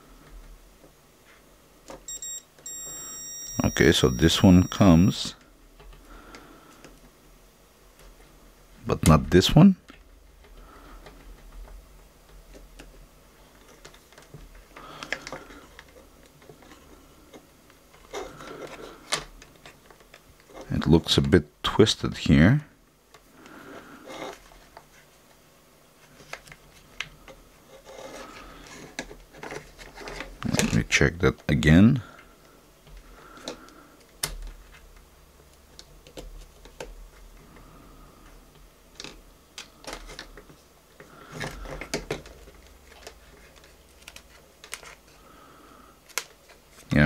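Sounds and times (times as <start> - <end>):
multimeter beep: 2.1 - 5.3.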